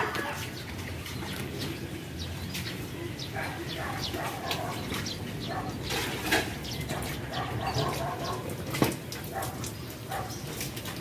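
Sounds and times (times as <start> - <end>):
dog barking: 3.4 - 4.8, 5.5 - 5.8, 6.9 - 8.5, 9.3 - 10.4
knocks and clicks in concrete culvert: 3.8 - 11.0.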